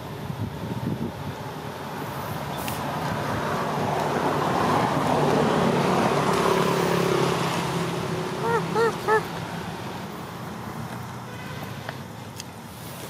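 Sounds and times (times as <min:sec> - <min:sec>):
vehicle engine approaching: 0:01.2 - 0:11.2.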